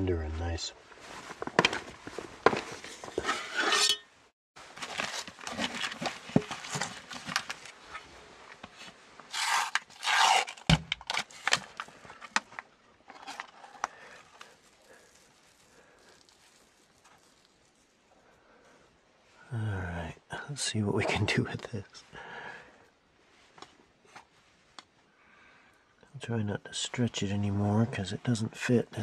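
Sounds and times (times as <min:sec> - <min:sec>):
camp gear clicking and knocking: 0:01.4 - 0:03.4, 0:04.7 - 0:07.7
paper packaging crinkling: 0:04.6 - 0:07.7, 0:09.3 - 0:12.4, 0:13.1 - 0:18.0.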